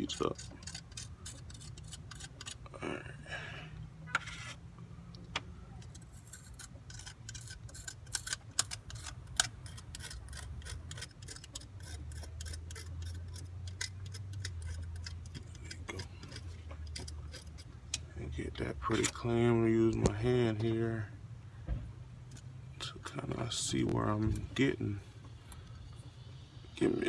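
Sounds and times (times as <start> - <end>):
blade scraping metal: 0.0 - 2.7, 4.1 - 4.6, 5.9 - 17.8, 18.5 - 19.7.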